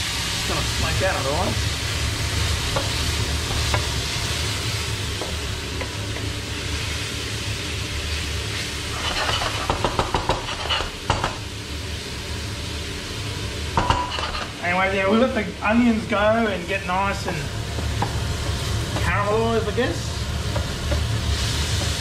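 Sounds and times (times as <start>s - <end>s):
onion sizzling in hot oil: 0.0s - 22.0s
range hood fan humming: 0.0s - 22.0s
wooden spoon scraping pan: 8.9s - 11.0s, 13.9s - 14.6s.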